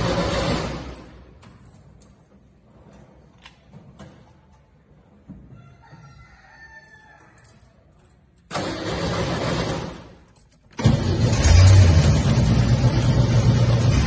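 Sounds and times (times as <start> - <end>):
rooster crowing: 5.5 - 7.8
car engine cranking: 8.5 - 14.0.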